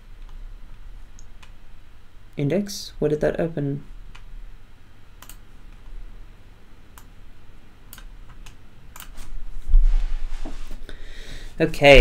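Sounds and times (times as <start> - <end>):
keyboard and mouse clicks: 0.2 - 0.4, 5.2 - 5.8, 7.9 - 9.2.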